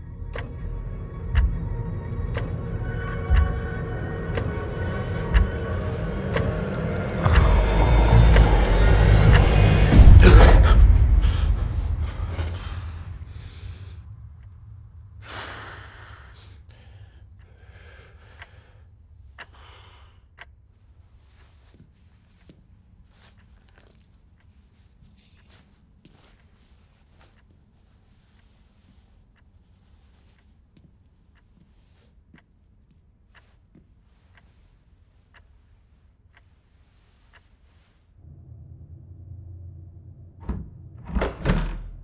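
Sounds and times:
steady low hum: 0.0 - 42.0
clock ticking faintly: 0.3 - 10.1, 16.4 - 37.6
person sighing: 9.9 - 11.6
soft breaths: 10.9 - 38.2
faint clicks: 16.5 - 20.6.

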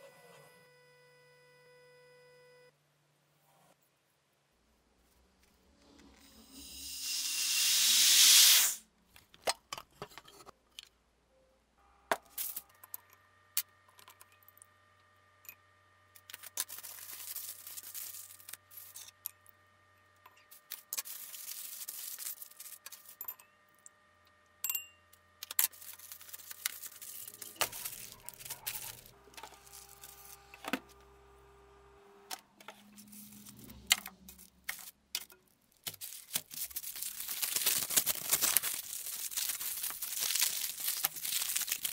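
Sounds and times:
aluminium foil crinkling: 16.2 - 19.2, 20.5 - 23.3, 25.4 - 30.6, 32.7 - 41.9.

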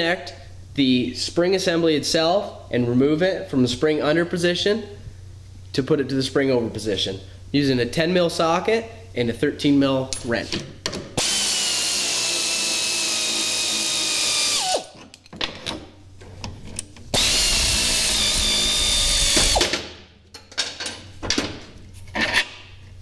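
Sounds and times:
air ratchet whining: 11.2 - 15.0, 17.1 - 19.7.

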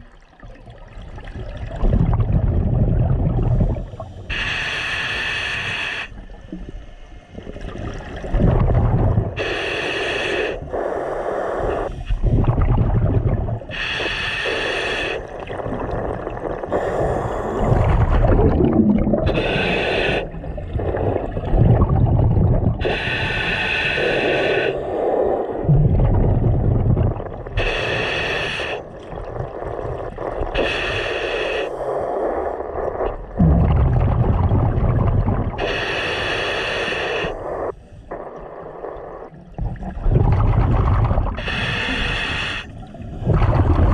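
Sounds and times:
exhaled bubbles rumbling: 0.0 - 4.4, 6.1 - 9.5, 11.6 - 14.1, 15.0 - 31.0, 32.0 - 36.3, 37.2 - 43.9
regulator inhalation hiss: 3.6 - 7.2, 9.4 - 12.3, 13.7 - 15.6, 16.6 - 18.1, 19.3 - 21.2, 22.8 - 25.6, 27.6 - 33.4, 35.6 - 39.4, 41.3 - 43.3.

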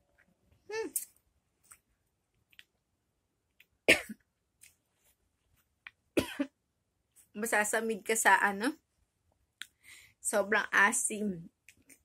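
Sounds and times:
mouth clicks and smacks: 0.9 - 2.8
woman coughing: 3.9 - 4.2, 6.2 - 6.6.

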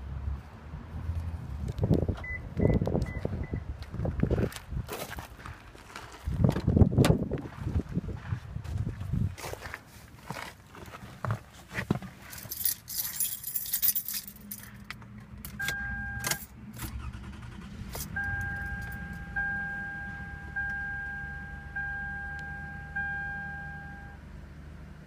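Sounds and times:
keys jangling in ignition: 12.2 - 19.3
car engine starting and idling: 13.3 - 25.0
dashboard warning chime: 15.6 - 16.4, 18.1 - 24.2.

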